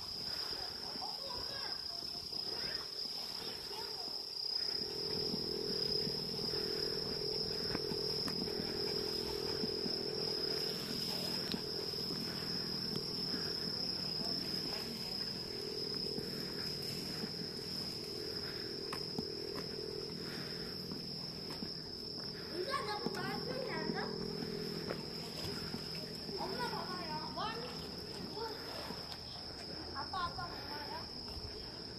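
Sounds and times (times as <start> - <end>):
insects trilling: 0.0 - 31.9
low background hum: 3.8 - 31.9.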